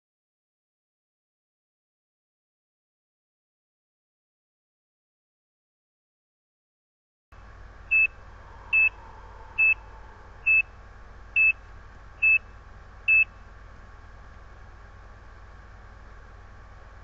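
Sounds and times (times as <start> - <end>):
heart monitor beeps: 7.9 - 8.1, 8.7 - 10.7, 12.2 - 12.4.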